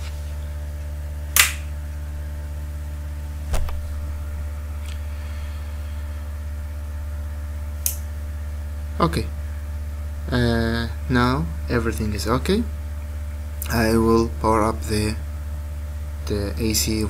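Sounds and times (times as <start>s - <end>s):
low electrical hum: 0.0s - 17.0s
sharp switch clicks: 1.4s - 1.7s
dull thump: 3.5s - 3.8s.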